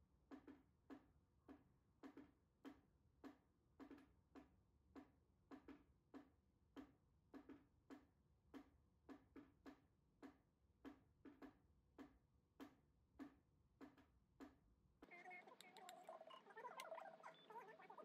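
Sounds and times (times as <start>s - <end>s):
faint short clicks: 15.5s - 17.0s.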